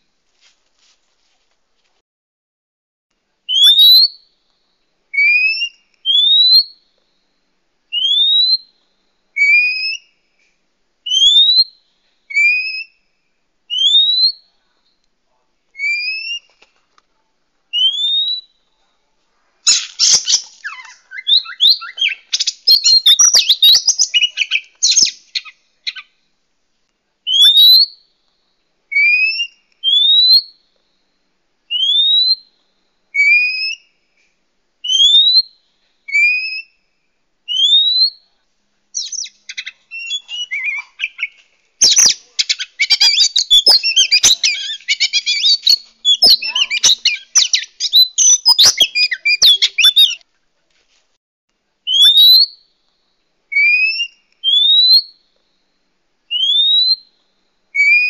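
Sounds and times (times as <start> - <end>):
bird scratchy chattering: 19.7 - 25.5, 39.0 - 50.2
bird whistling calls: 19.7 - 26.1, 39.0 - 50.2, 51.9 - 52.6, 53.5 - 55.1, 56.3 - 57.1, 57.8 - 58.0.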